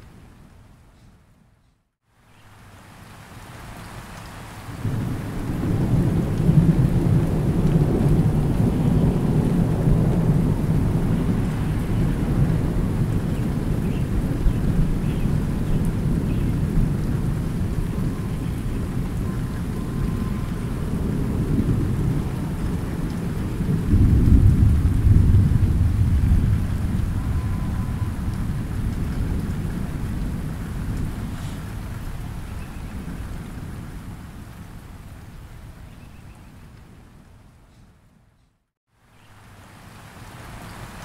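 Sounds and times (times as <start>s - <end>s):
light rain: 0.0s - 41.0s
thunder rumbling: 4.7s - 34.3s.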